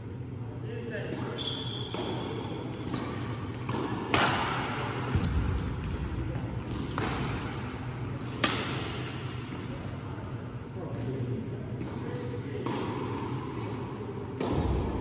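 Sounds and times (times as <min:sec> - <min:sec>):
rackets hitting shuttlecock: 0:01.1 - 0:07.5, 0:08.3 - 0:09.3, 0:11.8 - 0:15.0.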